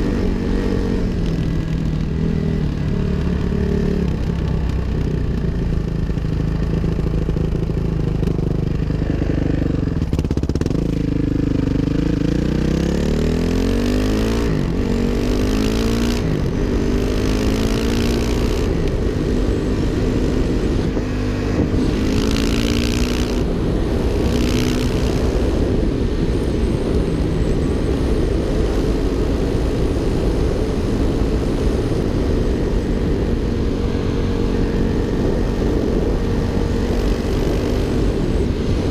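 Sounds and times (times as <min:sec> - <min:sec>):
dirt bike engine accelerating: 0:00.0 - 0:38.9
wind on microphone: 0:09.8 - 0:38.9.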